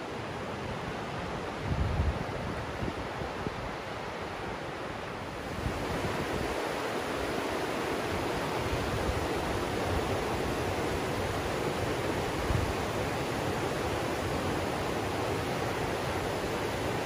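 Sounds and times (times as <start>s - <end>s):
stream rushing over rocks: 0.0s - 17.0s.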